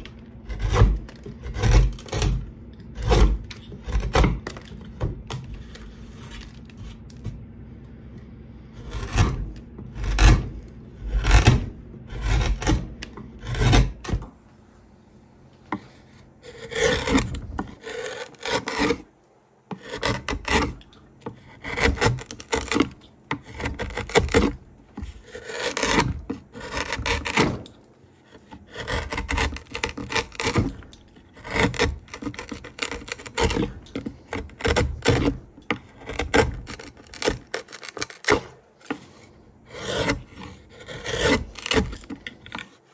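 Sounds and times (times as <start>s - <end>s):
gouge paring wood: 0.0s - 7.4s, 8.6s - 14.2s, 15.7s - 19.1s, 19.7s - 42.9s
hand tool scraping wood: 8.8s - 14.2s, 15.8s - 19.1s, 19.7s - 42.9s.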